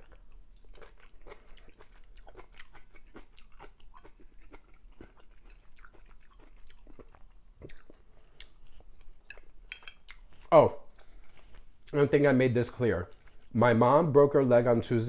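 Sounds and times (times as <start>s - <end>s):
person chewing food: 0.0s - 12.0s, 13.1s - 13.6s.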